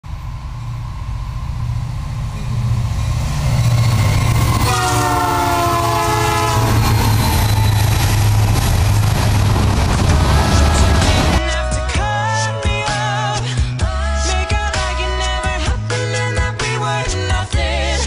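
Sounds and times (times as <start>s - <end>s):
diesel locomotives rumbling past: 0.0s - 12.0s
multi-note locomotive horn: 4.5s - 7.4s, 10.2s - 11.4s.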